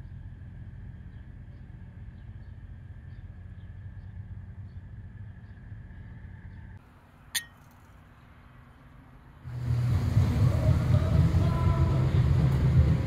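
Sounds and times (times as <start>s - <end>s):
tableware clinking: 7.4s - 7.8s.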